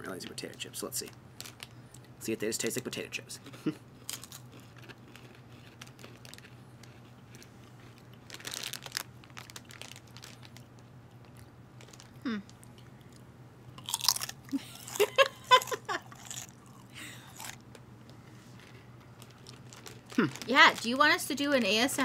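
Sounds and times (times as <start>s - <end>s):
potato chips crunching: 3.4s - 13.2s, 13.8s - 17.8s, 18.6s - 22.0s
people laughing: 14.5s - 16.1s.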